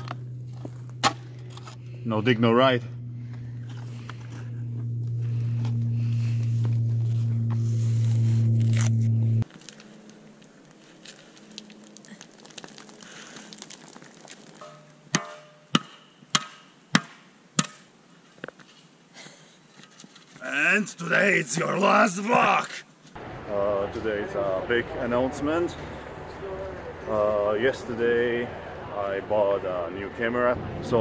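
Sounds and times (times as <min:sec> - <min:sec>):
low droning tone: 0:00.0 - 0:12.0
sharp knocks: 0:14.6 - 0:17.8.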